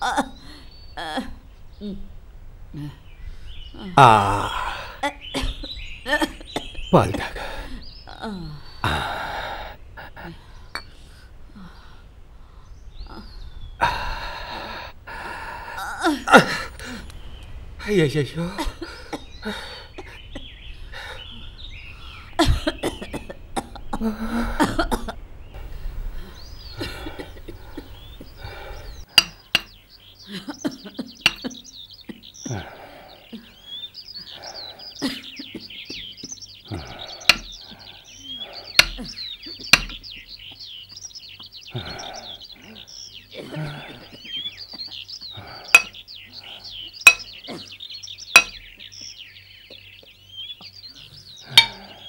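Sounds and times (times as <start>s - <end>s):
birds chirping: 0.0s - 52.0s
sharp clinks: 45.7s - 46.0s, 47.0s - 47.4s, 48.4s - 48.6s.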